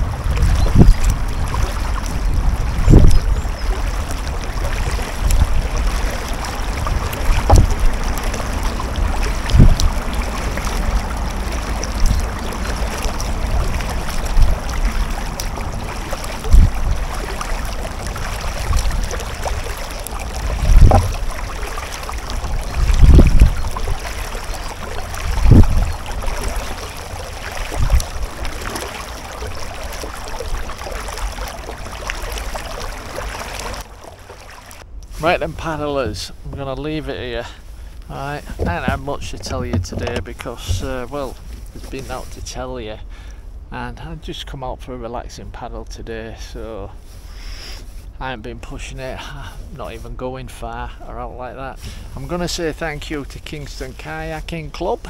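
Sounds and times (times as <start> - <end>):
wind rumble on microphone: 0.0 - 44.3
paddle water sounds: 0.0 - 55.0
low thump of kayak paddle: 2.8 - 3.3, 5.2 - 14.8, 15.4 - 17.5, 18.6 - 21.5, 24.6 - 26.1, 38.4 - 42.0.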